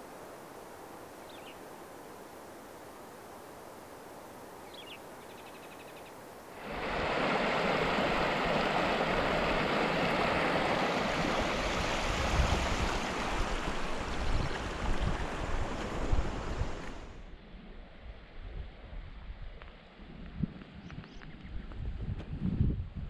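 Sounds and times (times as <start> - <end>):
stream water rushing and splashing: 6.5 - 17.3.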